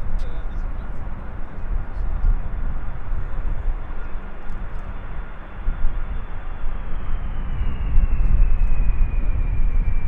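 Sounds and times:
jet engines whining: 0:00.0 - 0:10.0
wind buffeting microphone: 0:00.0 - 0:10.0.

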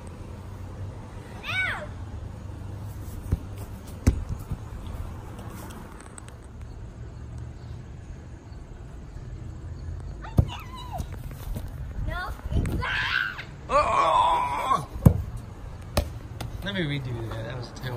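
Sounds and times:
outdoor background rumble: 0:00.0 - 0:17.9
sharp thumps: 0:03.2 - 0:04.9.

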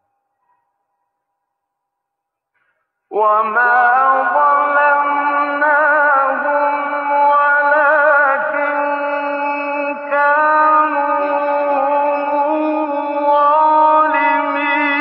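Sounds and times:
man chanting melodically: 0:03.1 - 0:15.0.

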